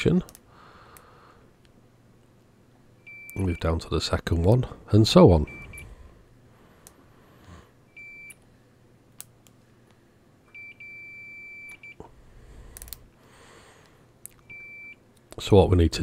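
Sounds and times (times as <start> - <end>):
multimeter continuity beeps: 3.0 - 3.8, 5.4 - 6.0, 7.9 - 8.4, 10.4 - 12.0, 14.4 - 15.1.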